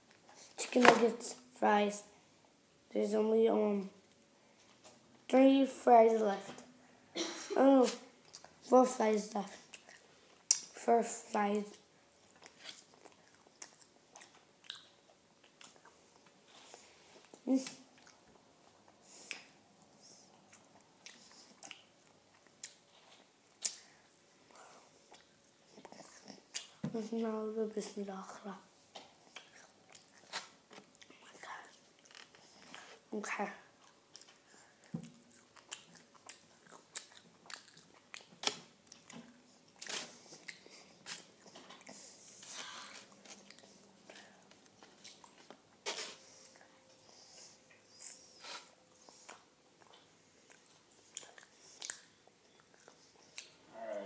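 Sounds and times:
child chewing fries: 7.9s - 8.7s, 9.4s - 26.8s, 29.0s - 53.7s
mouth clicks and smacks: 9.7s - 10.7s, 23.6s - 23.9s, 48.0s - 53.6s.

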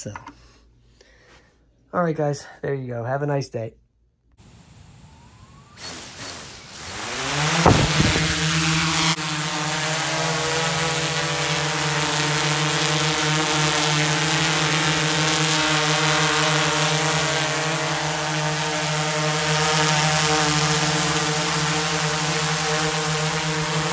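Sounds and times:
quadcopter motors buzzing: 4.4s - 23.9s.

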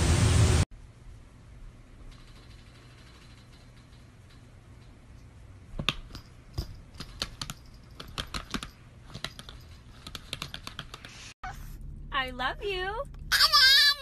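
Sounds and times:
laptop keyboard clicking: 7.0s - 11.1s.

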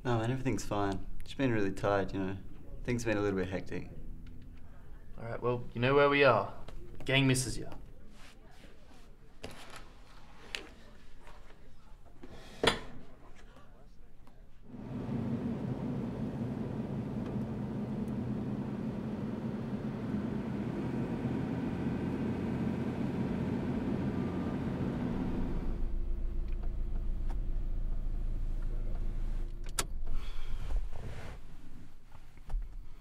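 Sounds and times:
car engine running: 14.7s - 29.5s.

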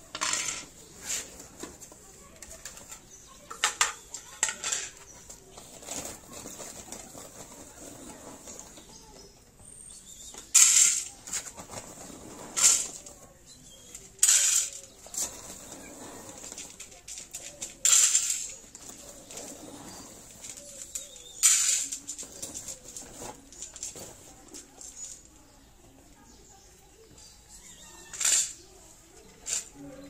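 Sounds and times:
plates clinking on concrete: 0.1s - 0.9s, 2.4s - 5.1s, 10.4s - 11.2s, 19.9s - 22.5s, 27.8s - 29.8s.

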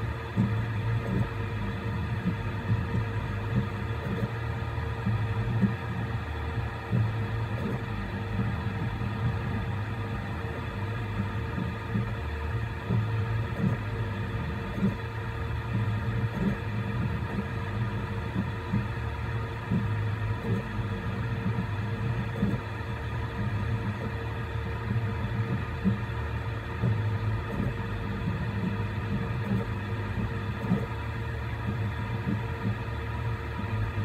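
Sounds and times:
low rumble: 0.4s - 19.0s.

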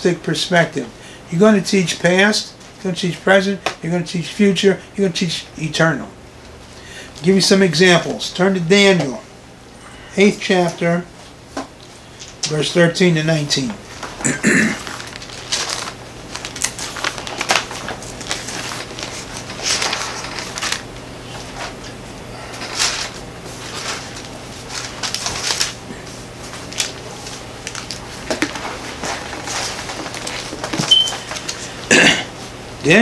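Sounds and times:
steady low hum: 0.0s - 33.0s
pages being turned: 14.8s - 31.7s.

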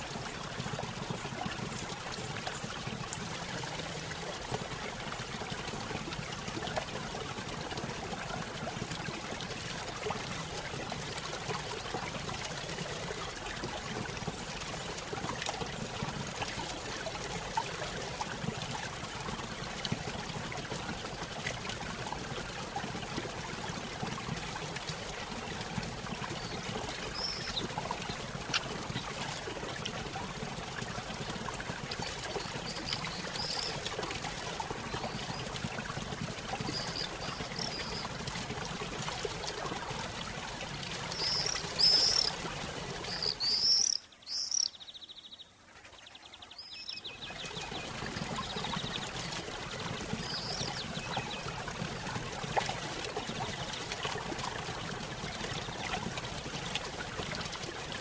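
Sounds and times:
small birds chirping: 26.4s - 28.7s, 32.0s - 33.8s, 36.6s - 38.1s, 41.0s - 42.4s, 43.0s - 45.5s, 46.3s - 49.0s, 50.2s - 51.5s.

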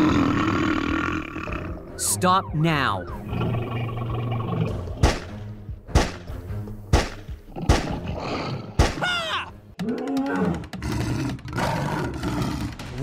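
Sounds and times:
growling animal roar: 0.0s - 1.9s, 9.8s - 12.8s
background music: 0.0s - 13.0s.

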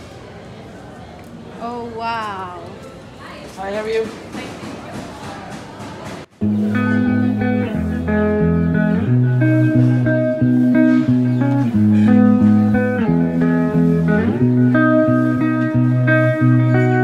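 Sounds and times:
plucked guitar tune: 6.3s - 17.0s.

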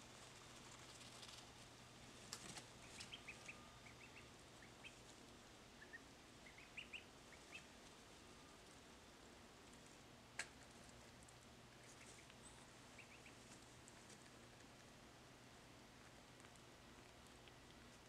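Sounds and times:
ducklings peeping: 2.6s - 5.2s, 5.8s - 7.8s, 11.7s - 13.6s.

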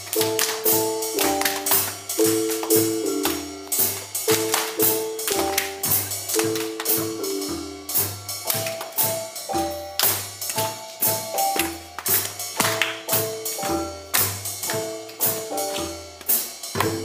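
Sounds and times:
short melodic notes: 0.0s - 16.2s
percussive beat: 0.0s - 17.0s.

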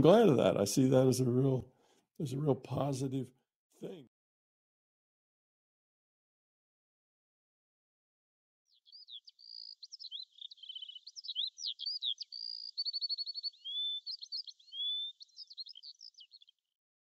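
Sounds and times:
songbird singing: 8.7s - 16.7s.

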